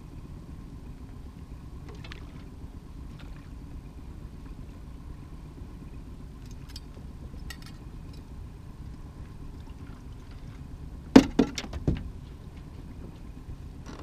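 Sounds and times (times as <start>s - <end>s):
small boat engine rumble: 0.0s - 14.0s
landing net knocking on deck: 11.2s - 12.1s.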